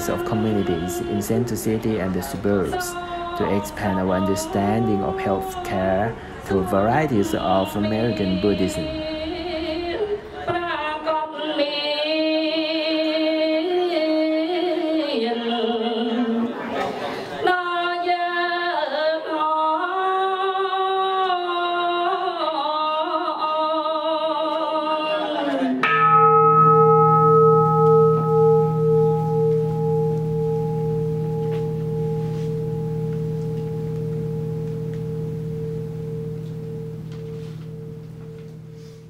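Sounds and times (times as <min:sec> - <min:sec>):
person singing slow chant: 0:00.0 - 0:16.5
metal bowl-bell ringing: 0:25.8 - 0:39.0.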